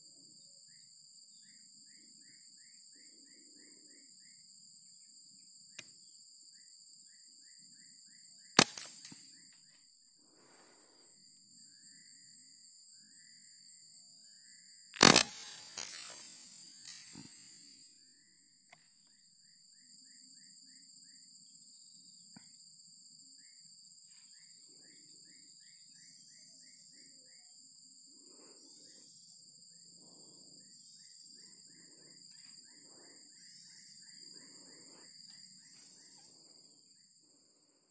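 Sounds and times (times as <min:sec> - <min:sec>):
short insect chirps: 0:00.4 - 0:20.9, 0:23.3 - 0:37.9
high-pitched insect drone: 0:07.8 - 0:09.2, 0:13.0 - 0:17.7.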